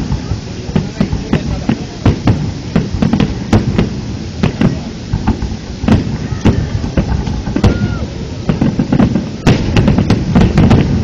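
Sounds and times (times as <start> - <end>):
firework shells bursting: 0.0 - 11.0.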